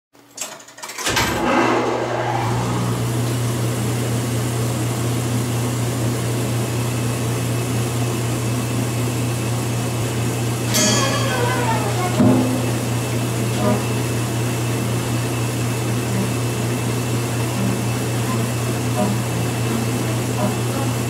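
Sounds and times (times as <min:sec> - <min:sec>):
blower motor humming: 0:01.1 - 0:21.0
air noise: 0:01.3 - 0:04.3.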